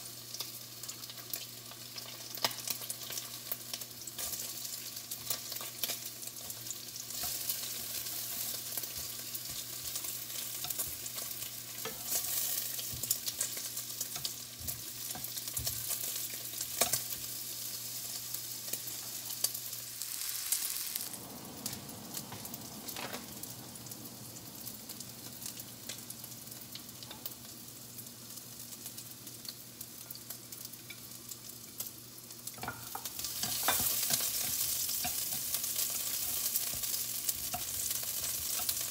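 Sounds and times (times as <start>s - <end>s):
food sizzling in a frying pan: 0.0s - 38.9s
chopsticks scraping a pan: 7.2s - 17.2s, 32.6s - 38.8s
low hum: 19.8s - 27.5s.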